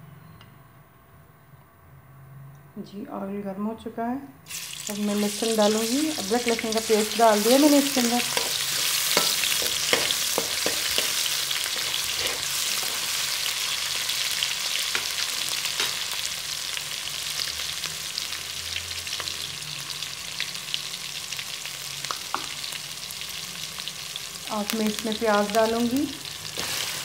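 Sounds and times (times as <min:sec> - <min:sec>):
paste sizzling in hot oil: 0:04.5 - 0:27.0.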